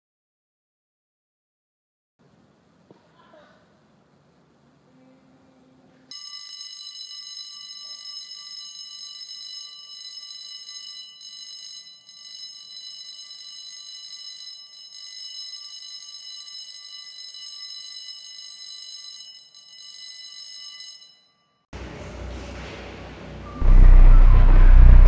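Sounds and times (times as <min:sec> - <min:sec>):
alarm ringing: 0:06.1 - 0:21.6, 0:23.4 - 0:25.0.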